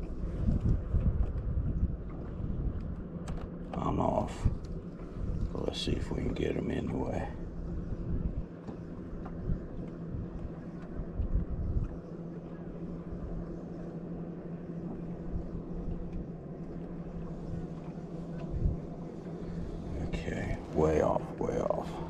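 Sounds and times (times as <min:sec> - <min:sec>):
wind noise: 0:00.0 - 0:06.4, 0:07.0 - 0:08.5, 0:09.1 - 0:12.1, 0:18.3 - 0:21.5
electric trolling motor humming: 0:00.0 - 0:22.0
water noise: 0:00.0 - 0:22.0.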